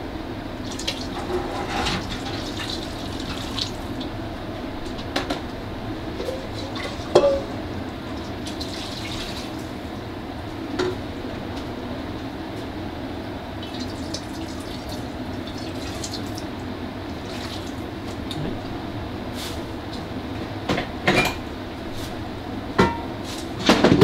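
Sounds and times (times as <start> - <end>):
liquid running and bubbling: 0.6 - 5.1, 5.7 - 10.0, 13.5 - 20.2
pots and utensils clinking: 6.2 - 7.5, 21.1 - 21.4.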